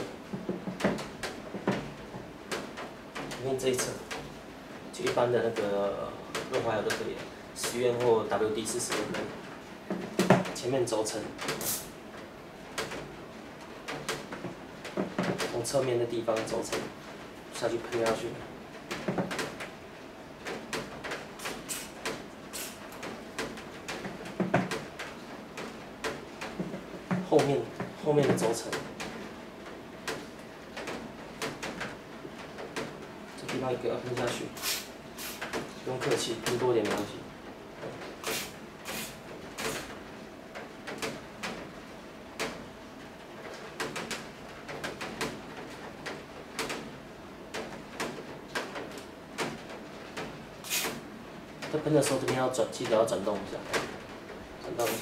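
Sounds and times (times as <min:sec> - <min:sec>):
aerosol spray hisses: 0:11.6 - 0:11.9, 0:21.4 - 0:22.8, 0:34.6 - 0:35.4, 0:38.2 - 0:39.9, 0:50.6 - 0:51.0.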